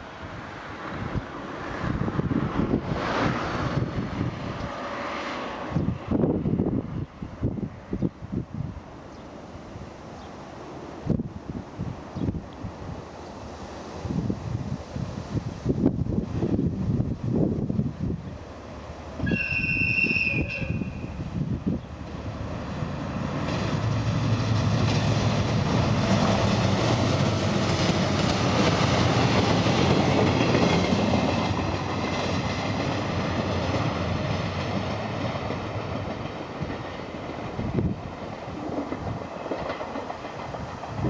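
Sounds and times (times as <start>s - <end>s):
diesel locomotive rumble: 14.0s - 41.0s
train wheels clattering: 23.4s - 41.0s.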